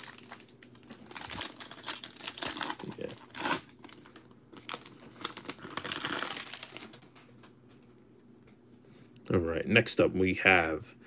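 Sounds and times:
foil wrappers crinkling: 0:00.0 - 0:07.2.

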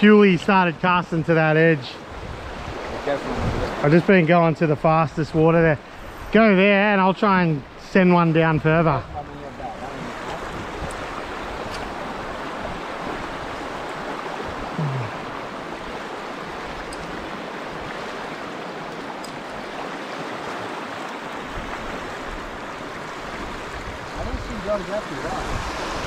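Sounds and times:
river rushing over rocks: 0:09.9 - 0:26.0.

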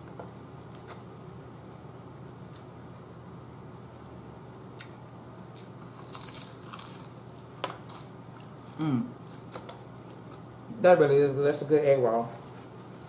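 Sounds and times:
crunchy bite into egg roll: 0:05.5 - 0:09.5.

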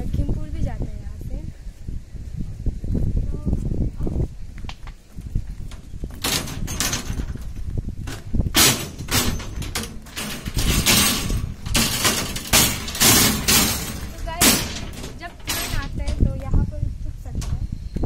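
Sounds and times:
footsteps crunching on ballast stones: 0:04.2 - 0:06.6.

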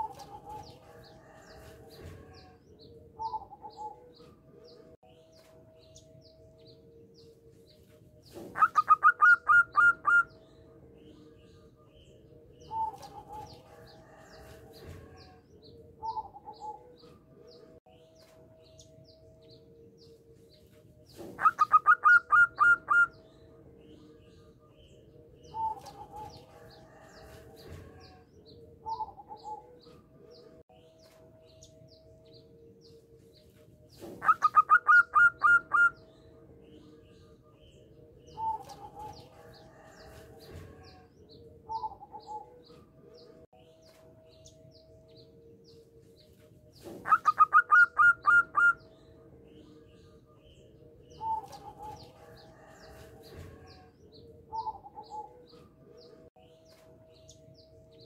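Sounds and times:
dove calls: 0:00.0 - 0:02.6, 0:08.3 - 0:10.4, 0:12.6 - 0:15.4, 0:21.1 - 0:23.2, 0:25.5 - 0:28.2, 0:34.0 - 0:36.0, 0:38.3 - 0:41.0, 0:46.8 - 0:48.9.

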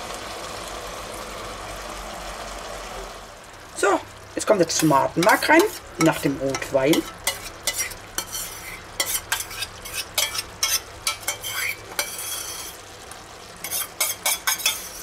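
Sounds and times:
meat sizzling in a pot: 0:00.0 - 0:15.0
spoons scraping bowl and pot: 0:04.8 - 0:12.8, 0:13.6 - 0:15.0.

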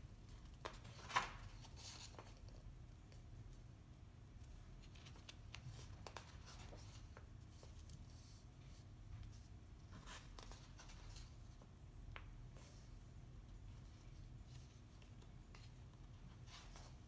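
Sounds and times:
book pages turning: 0:00.4 - 0:02.6, 0:04.8 - 0:08.4.

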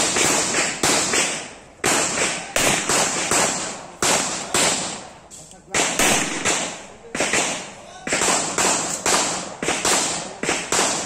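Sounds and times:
handgun shots with echo: 0:05.7 - 0:11.0.

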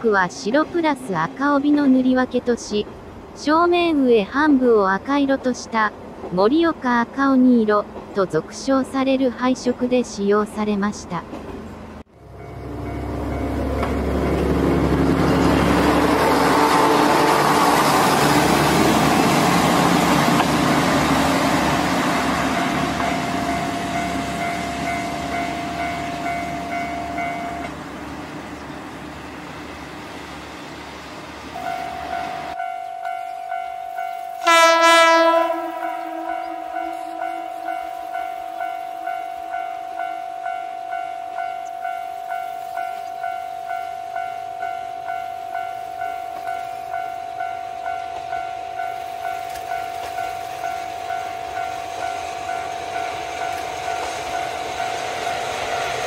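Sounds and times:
diesel railcar engine and wheels: 0:00.0 - 0:56.0
crossing bell ringing: 0:12.2 - 0:17.8, 0:19.4 - 0:28.7, 0:31.6 - 0:56.0
railcar horn blast: 0:15.9 - 0:18.5, 0:34.4 - 0:37.9.

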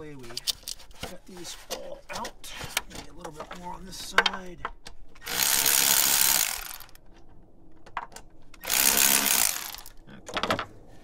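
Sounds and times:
electric ratchet wrench running: 0:05.2 - 0:07.0, 0:08.6 - 0:10.0.

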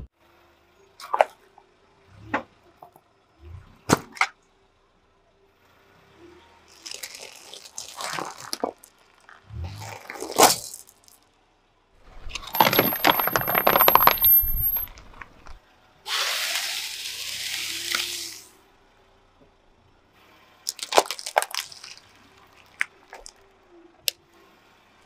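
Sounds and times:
tyre crunching foam: 0:06.8 - 0:08.7
glass marbles clinking on asphalt: 0:06.8 - 0:09.4, 0:10.1 - 0:11.2, 0:12.1 - 0:15.6, 0:20.7 - 0:23.4
tyre crushing ball crackling: 0:12.1 - 0:15.6
sharp crack of breaking: 0:20.7 - 0:23.3.

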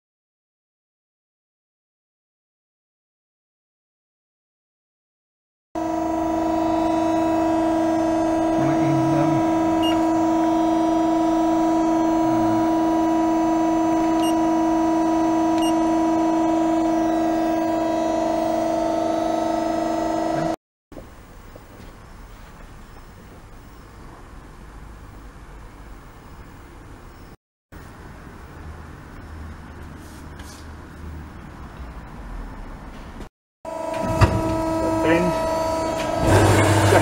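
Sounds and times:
press brake humming whine: 0:05.8 - 0:24.0, 0:33.7 - 0:37.0
workshop noise: 0:05.8 - 0:24.4, 0:29.2 - 0:37.0.

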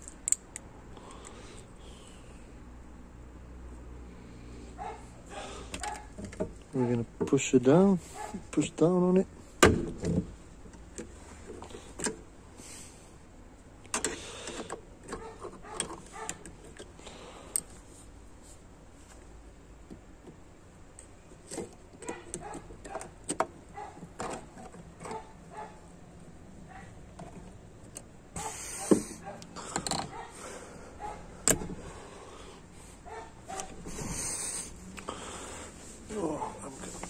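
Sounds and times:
metallic clicks and taps: 0:00.0 - 0:00.7.

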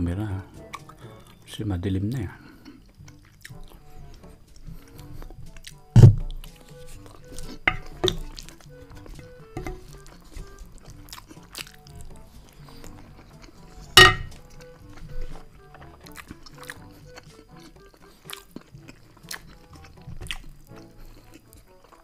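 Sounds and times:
soft background music: 0:00.0 - 0:22.0
chewing and mouth clicks: 0:00.6 - 0:01.4, 0:02.4 - 0:22.0
wooden spoon set on ceramic plate: 0:14.0 - 0:14.4.

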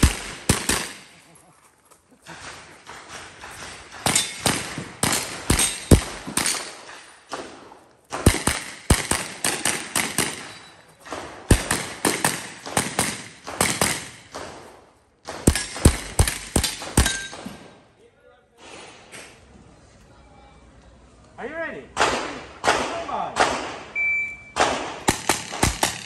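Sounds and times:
carbine firing rapid shots: 0:00.0 - 0:01.2, 0:02.5 - 0:07.5, 0:08.1 - 0:14.6, 0:15.2 - 0:17.5, 0:24.6 - 0:26.0.

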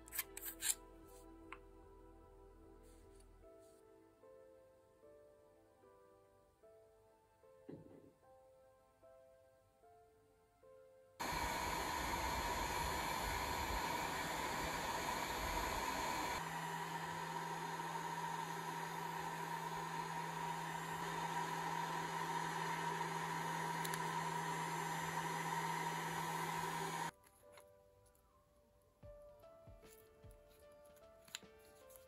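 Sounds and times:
heat gun blowing air: 0:11.2 - 0:27.1.

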